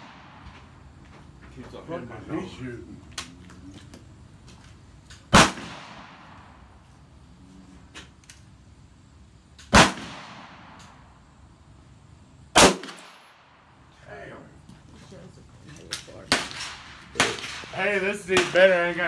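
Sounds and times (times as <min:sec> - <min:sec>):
gunshots with echo: 0:05.3 - 0:06.4, 0:16.3 - 0:18.6.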